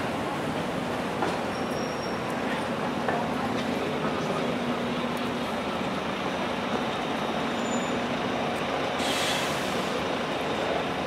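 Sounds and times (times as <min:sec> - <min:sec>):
city street traffic: 0:00.0 - 0:11.0
hiss: 0:09.0 - 0:10.0.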